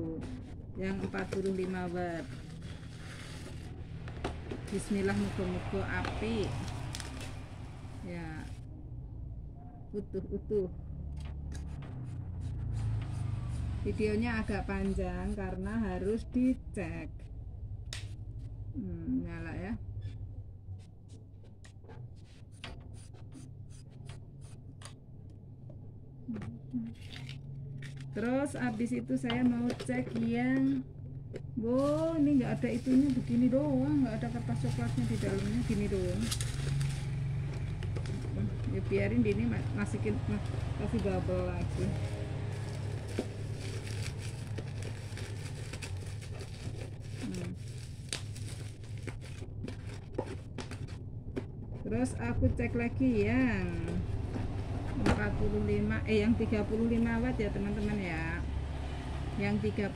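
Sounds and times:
low steady hum: 0:00.0 - 0:59.9
bubble wrap crinkling: 0:01.0 - 0:04.1, 0:31.7 - 0:38.6, 0:39.6 - 0:51.0.

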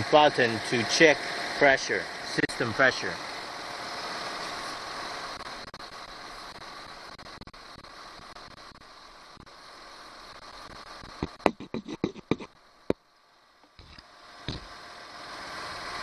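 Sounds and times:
refrigerant hissing through hose: 0:00.0 - 0:12.4
sharp knocks: 0:11.2 - 0:12.5.

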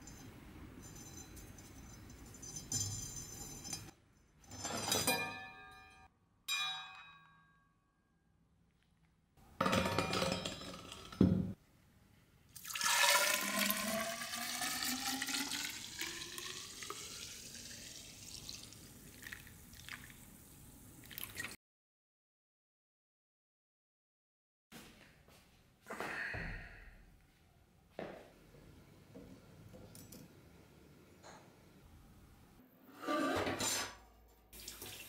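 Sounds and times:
liquid pouring into a tube: 0:12.6 - 0:20.3, 0:21.0 - 0:21.6.

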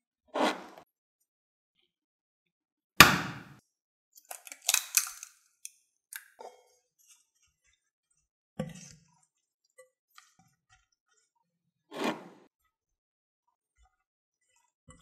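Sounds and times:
egg cracking knock: 0:03.0 - 0:03.6
eggshell crackling: 0:04.3 - 0:05.3.

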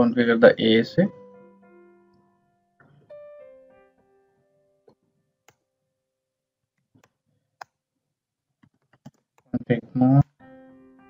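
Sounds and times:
quiet background music: 0:00.0 - 0:06.1, 0:09.5 - 0:11.0.

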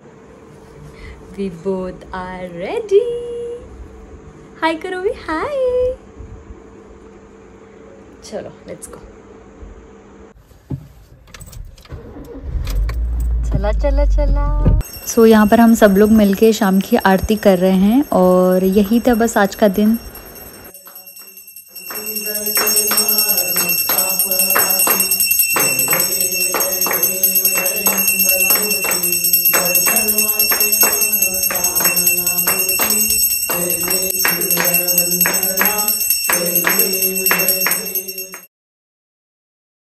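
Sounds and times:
handbell ringing: 0:14.8 - 0:38.5
rhythmic hand-clapping: 0:20.7 - 0:38.5
group singing: 0:20.8 - 0:38.5.

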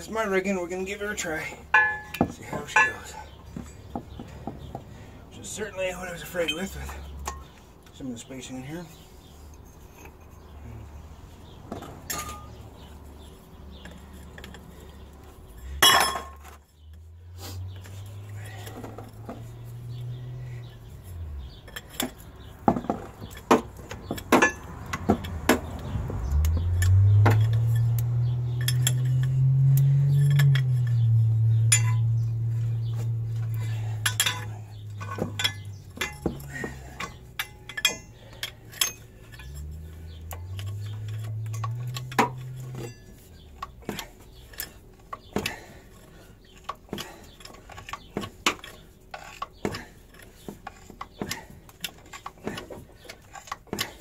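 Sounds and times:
low hum rising in pitch: 0:25.7 - 0:35.8, 0:39.4 - 0:43.0.

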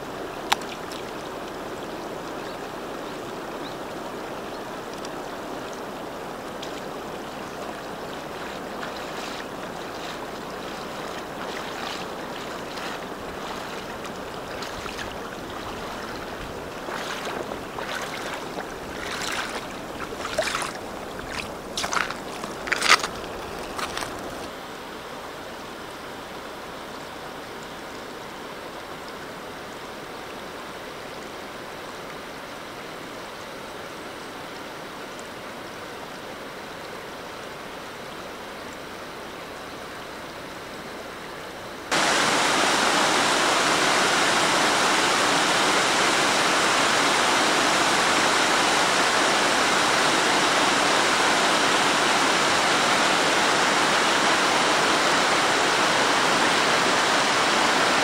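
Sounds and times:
river water running over stones: 0:00.0 - 0:58.0
water spilling over ledge: 0:04.3 - 0:24.5.

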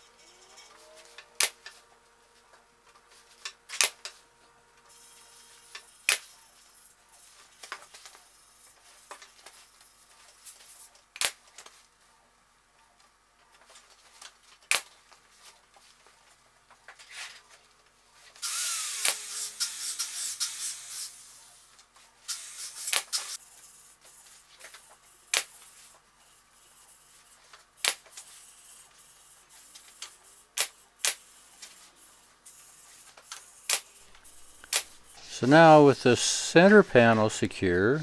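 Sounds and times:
pneumatic stapler shots: 0:18.4 - 0:21.1, 0:22.3 - 0:23.4, 0:30.6 - 0:31.3, 0:33.3 - 0:35.0.

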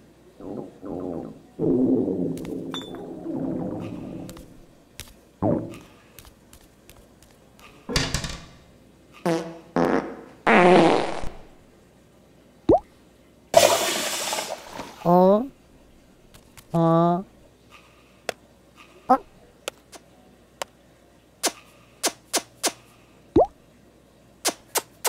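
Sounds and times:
low fart-like buzz: 0:00.4 - 0:04.7, 0:05.4 - 0:05.9, 0:09.2 - 0:11.6.

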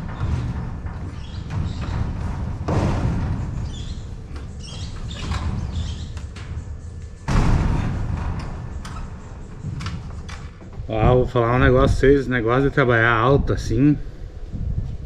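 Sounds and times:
knocks and bangs on metal gutter: 0:00.0 - 0:12.0
metal clatter: 0:00.0 - 0:12.0
steady low rumble: 0:00.0 - 0:15.0.

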